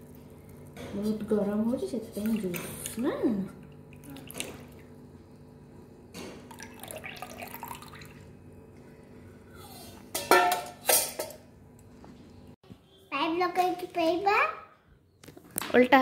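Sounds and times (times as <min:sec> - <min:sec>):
low steady hum: 0:00.0 - 0:13.0
kitchenware clanking: 0:09.7 - 0:11.5
dishes clinking: 0:10.1 - 0:11.4.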